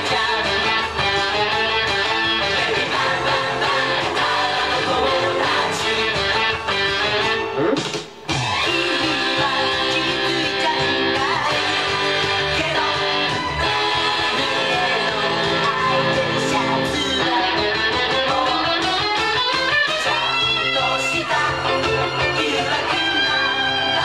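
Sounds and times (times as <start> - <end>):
pop song recording: 0.0 - 24.0
electric guitar playing: 0.4 - 9.4, 10.1 - 24.0
man singing: 14.3 - 18.8.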